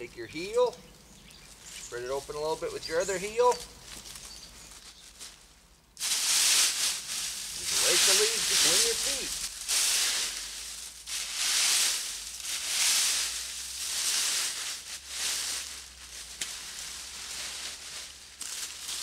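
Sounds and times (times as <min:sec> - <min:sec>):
dry leaves being raked: 0:06.0 - 0:19.0.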